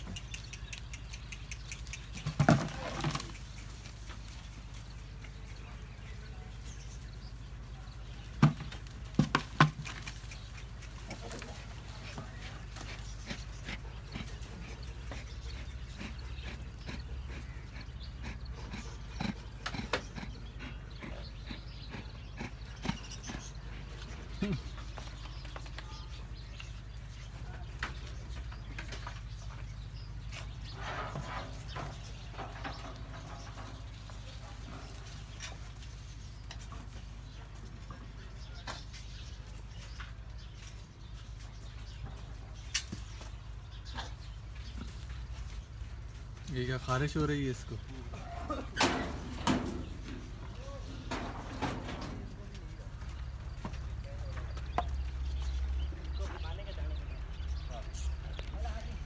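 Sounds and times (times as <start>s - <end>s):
faint scattered clicks: 0.0s - 2.3s
goats shuffling on sand: 0.0s - 59.0s.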